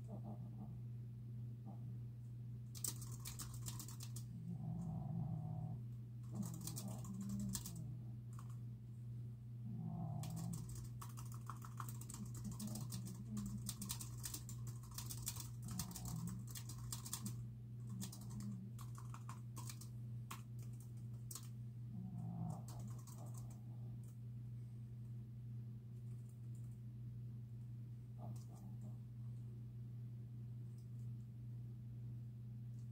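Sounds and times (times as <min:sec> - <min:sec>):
steady low hum: 0:00.0 - 0:32.9
typing on keyboard: 0:02.7 - 0:04.3, 0:06.2 - 0:08.6, 0:10.2 - 0:21.6, 0:22.4 - 0:23.6, 0:26.1 - 0:26.8.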